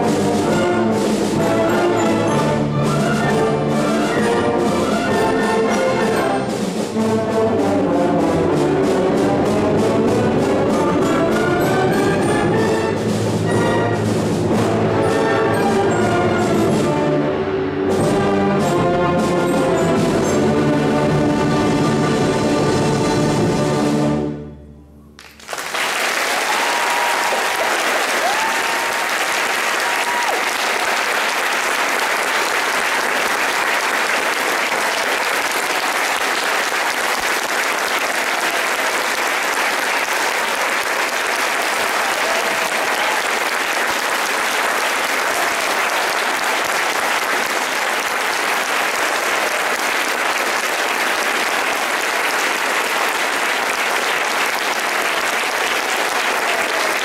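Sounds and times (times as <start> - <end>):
audience applauding: 25.2 - 57.0.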